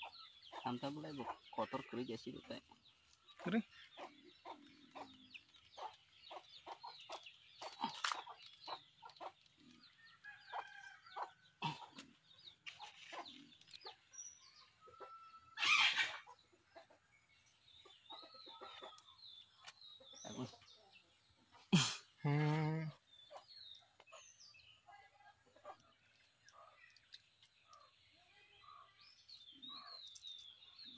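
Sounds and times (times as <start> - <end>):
chickens clucking: 0.0 - 21.7.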